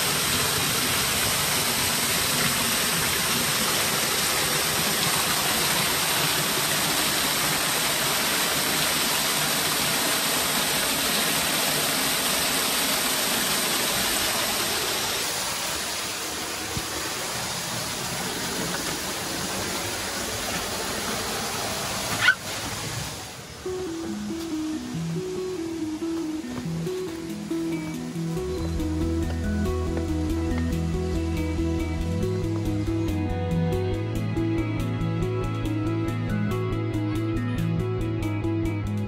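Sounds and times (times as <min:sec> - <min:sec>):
waterfall splashing into pool: 0:00.0 - 0:23.6.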